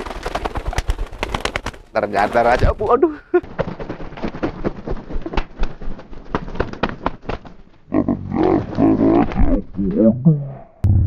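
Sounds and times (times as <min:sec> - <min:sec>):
pigeon wings flapping: 0:00.0 - 0:07.9.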